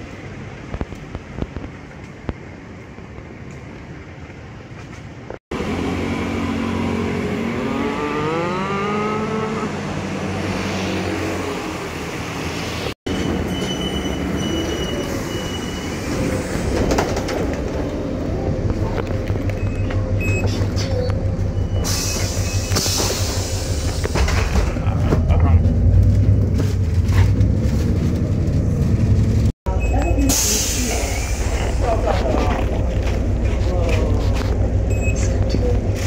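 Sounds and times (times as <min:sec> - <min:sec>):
bus engine throbbing: 0:00.0 - 0:36.0
street traffic: 0:00.0 - 0:36.0
vehicle pulling away whining: 0:05.5 - 0:13.0.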